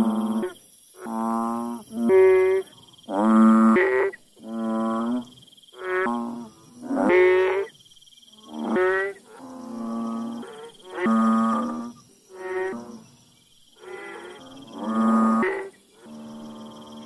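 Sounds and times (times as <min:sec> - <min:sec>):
frog droning calls: 0:00.0 - 0:17.0.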